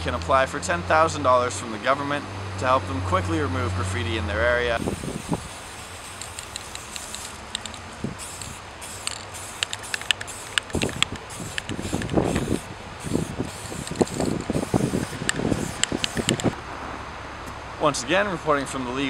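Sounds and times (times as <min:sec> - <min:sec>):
spray paint can hissing: 0:04.8 - 0:16.6.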